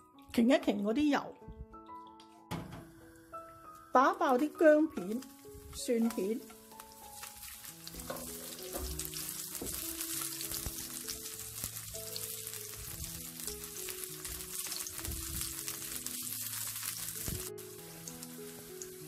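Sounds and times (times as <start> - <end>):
background music: 0.0 - 19.0
sizzling in hot oil: 3.9 - 19.0.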